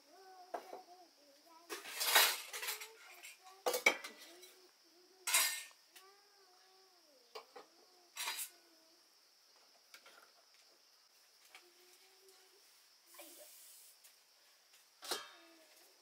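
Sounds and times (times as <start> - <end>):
steel dishes clattering: 1.8 - 2.9, 5.3 - 5.7, 15.0 - 15.4.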